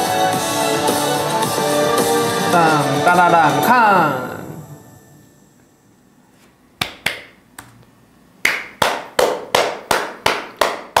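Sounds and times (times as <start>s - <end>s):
person clapping hands: 6.8s - 7.8s, 8.4s - 11.0s.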